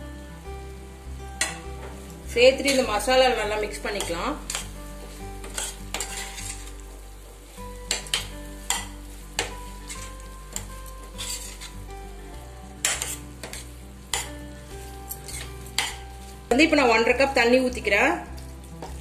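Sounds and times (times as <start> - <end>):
frying sizzle: 0.0 - 19.0
steel spoon scraping pan: 4.0 - 4.8, 5.4 - 6.8, 7.8 - 11.8, 12.8 - 14.4, 15.1 - 16.4.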